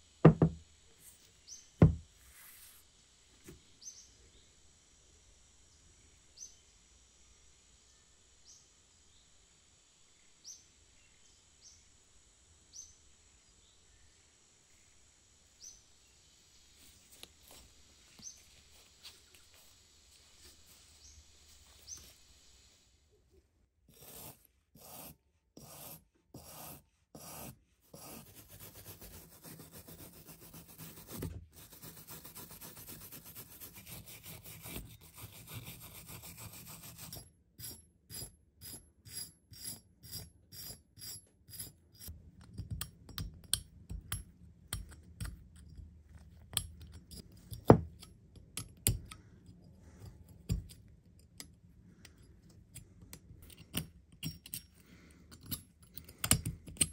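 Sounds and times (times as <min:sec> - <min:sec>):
brush scrubbing rust: 0:23.9 - 0:40.8.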